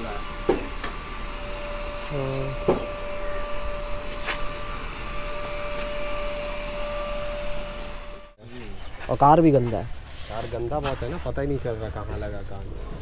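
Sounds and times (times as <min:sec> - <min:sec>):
small motor humming: 0:00.0 - 0:08.4.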